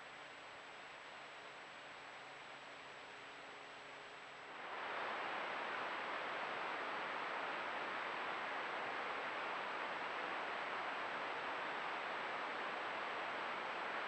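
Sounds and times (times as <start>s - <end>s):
faint high-pitched whine: 0.0s - 14.0s
steady microphone hiss: 0.0s - 14.0s.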